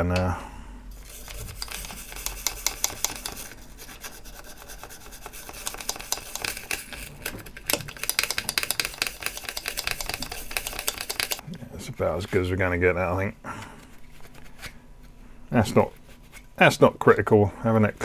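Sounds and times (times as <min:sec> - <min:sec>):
toothbrush scrubbing plastic: 0:01.0 - 0:11.4.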